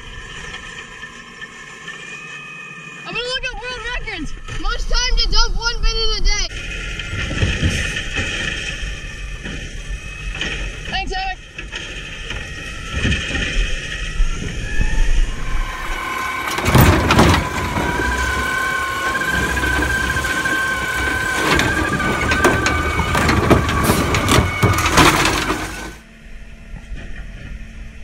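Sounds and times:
hydraulic arm whine: 0.0 - 5.4, 6.5 - 28.0
cart banging against hopper: 15.4 - 26.0.

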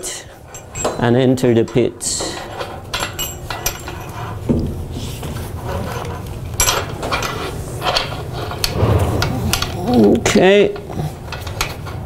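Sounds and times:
metal hardware clicking and clinking: 0.5 - 4.2, 6.0 - 12.0.

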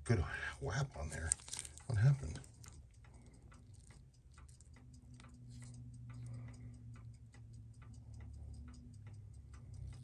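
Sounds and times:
watch ticking: 0.0 - 10.0.

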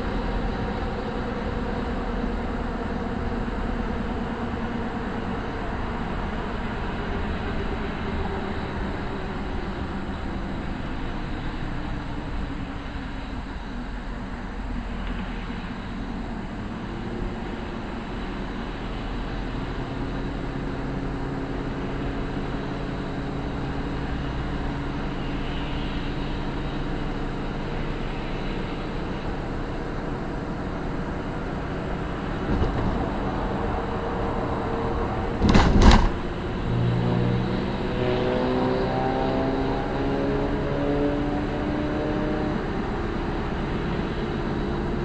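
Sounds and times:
car road and engine hum: 0.0 - 45.0
loud double thump: 35.4 - 36.2.

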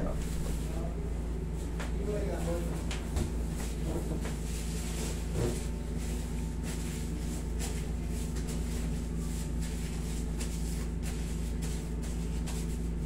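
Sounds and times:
air conditioner hum: 0.0 - 13.0.

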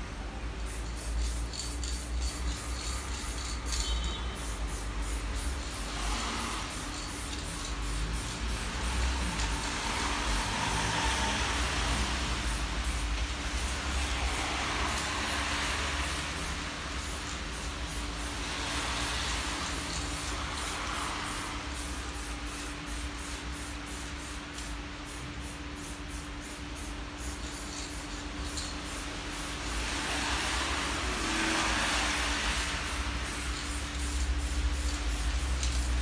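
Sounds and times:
steady low hum: 0.0 - 36.0
spray paint can hissing: 0.6 - 36.0.

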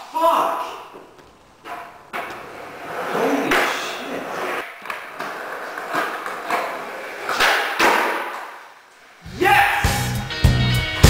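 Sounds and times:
skateboard wheels rolling on concrete: 0.6 - 11.0
skateboard clacks: 0.9 - 8.9.

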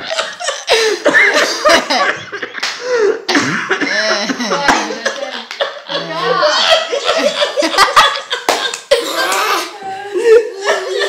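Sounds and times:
people laughing: 0.0 - 11.0
wordless voices: 2.8 - 11.0
person coughing: 3.3 - 5.0.

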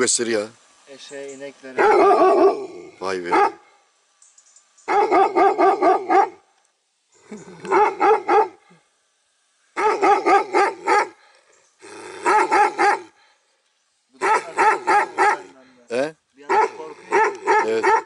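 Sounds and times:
dog barking: 1.8 - 2.7, 3.3 - 3.6, 4.9 - 6.4, 7.7 - 8.6, 9.8 - 11.2, 12.2 - 13.1, 14.2 - 15.5, 16.4 - 18.0.

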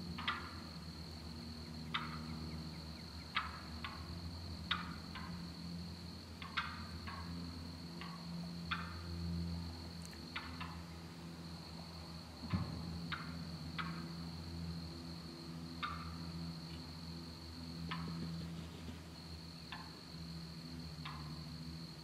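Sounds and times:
steady high whine: 0.0 - 22.0
wild turkeys calling: 6.4 - 7.3.

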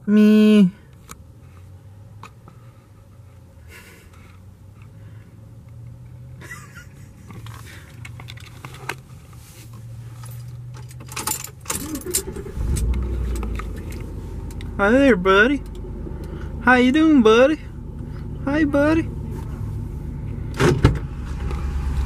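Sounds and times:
low hum inside truck cab: 0.0 - 22.0
small clicks and rustles: 7.2 - 14.7
keys jangling: 10.2 - 14.0.

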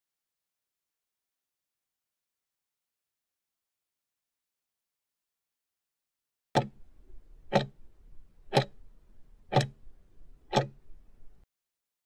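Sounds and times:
countdown timer ticking: 7.5 - 7.8, 8.5 - 8.8, 9.5 - 9.8, 10.5 - 10.8.

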